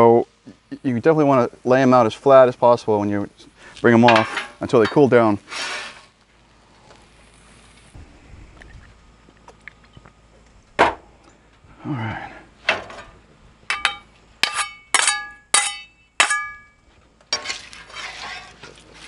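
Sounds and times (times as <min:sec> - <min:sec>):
metal spatulas clanging together: 0:13.7 - 0:16.6.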